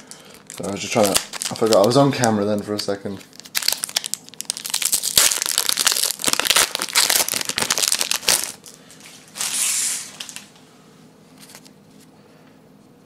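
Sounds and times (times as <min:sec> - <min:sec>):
cards rustling: 0:00.1 - 0:08.8
foil wrapper tearing and crinkling: 0:00.1 - 0:08.8.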